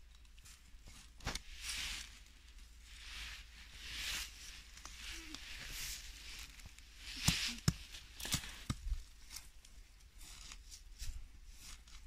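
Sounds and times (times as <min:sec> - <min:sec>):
trowel scraping soil: 0:02.9 - 0:09.5.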